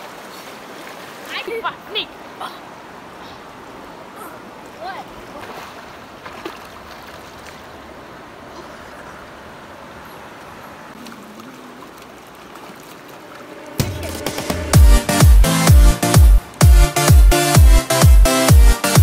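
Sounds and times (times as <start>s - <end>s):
small water splashes: 0.0s - 13.8s
water flowing over rocks: 0.0s - 16.8s.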